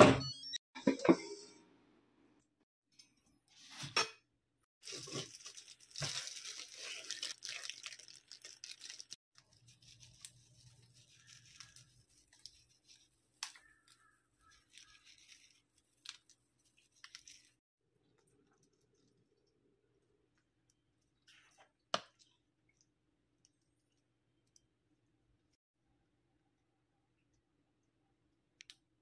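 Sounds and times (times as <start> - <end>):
dry seaweed crackling: 4.8 - 9.2.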